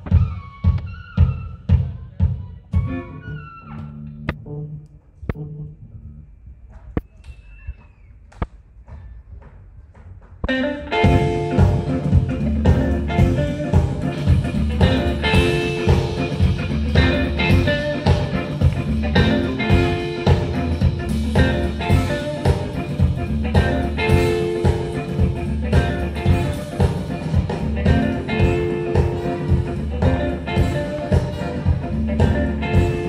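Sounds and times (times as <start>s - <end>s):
drum kit: 0.0s - 3.2s, 9.9s - 33.0s
electric guitars: 10.4s - 33.0s.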